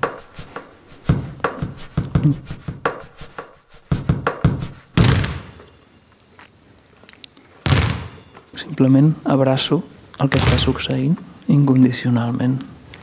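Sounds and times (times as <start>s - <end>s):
basketballs bouncing: 4.0s - 5.7s, 7.7s - 8.4s, 10.4s - 10.9s.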